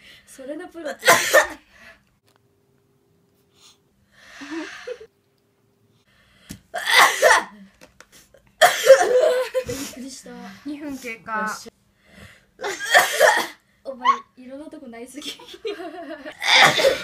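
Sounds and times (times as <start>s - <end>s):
woman sneezing: 6.8s - 7.6s, 12.6s - 13.6s, 16.4s - 17.0s.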